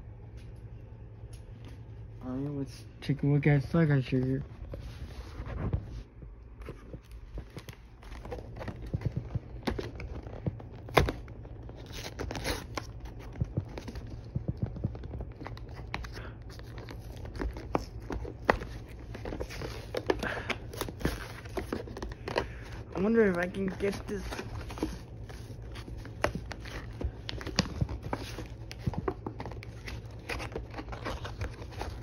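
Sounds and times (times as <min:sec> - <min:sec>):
crinkling and scraping: 0:03.8 - 0:32.0
packaging being torn open: 0:09.5 - 0:14.0.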